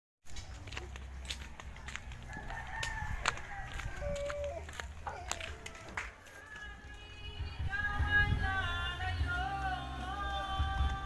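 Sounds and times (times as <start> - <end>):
footsteps on dirt path: 0.2 - 7.1.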